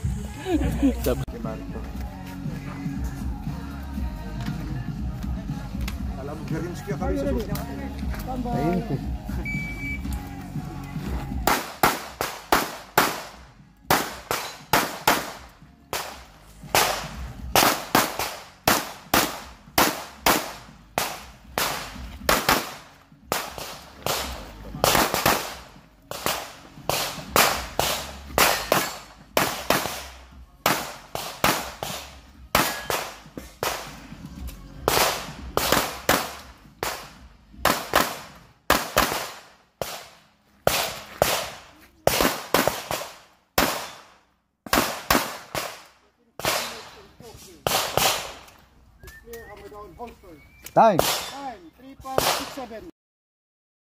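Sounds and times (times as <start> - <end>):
pistol shots with short echo: 11.4 - 34.0, 34.9 - 47.0, 50.9 - 51.4.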